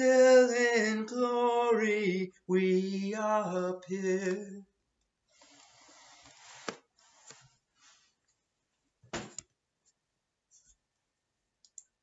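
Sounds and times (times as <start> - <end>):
faint clicks: 11.6 - 11.9.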